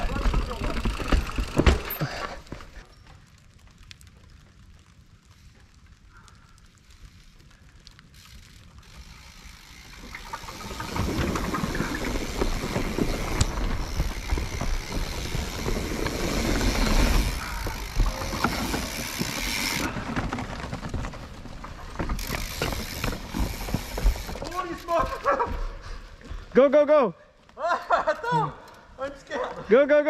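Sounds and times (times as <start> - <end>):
bike rattling clicks and knocks: 0.0 - 3.3, 6.8 - 25.6
mountain bike tyres rumbling: 0.0 - 26.8.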